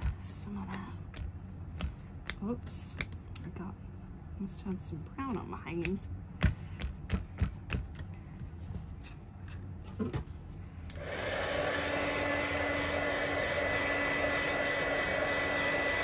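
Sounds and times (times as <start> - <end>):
electric dryer blowing: 10.9 - 16.0.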